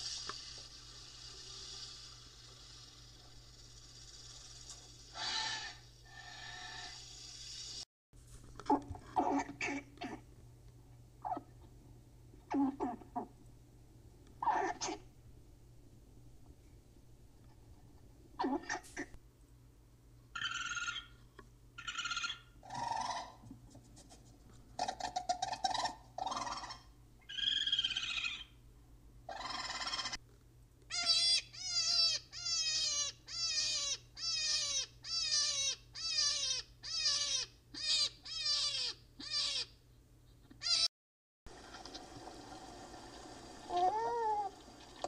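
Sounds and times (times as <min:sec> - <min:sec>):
small animal squeaks and chattering: 0:11.2 - 0:11.5, 0:14.4 - 0:15.0, 0:20.4 - 0:21.2, 0:21.8 - 0:23.4, 0:24.8 - 0:28.6, 0:29.3 - 0:30.2, 0:30.9 - 0:39.8, 0:40.5 - 0:40.9.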